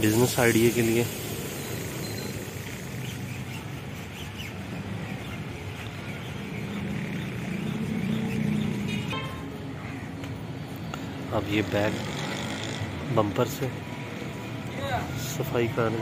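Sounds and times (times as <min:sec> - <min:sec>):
outdoor background noise: 0:00.0 - 0:16.0
faint bird chirps: 0:01.5 - 0:10.1.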